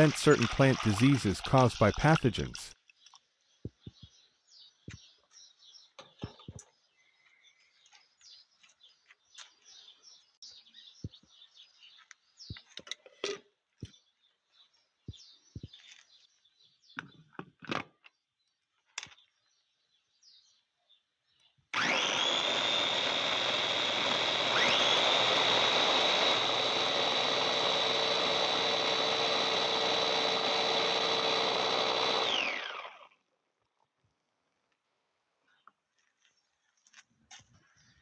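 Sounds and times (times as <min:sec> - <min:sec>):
food chopper motor whining: 0:00.0 - 0:02.7, 0:21.8 - 0:33.1.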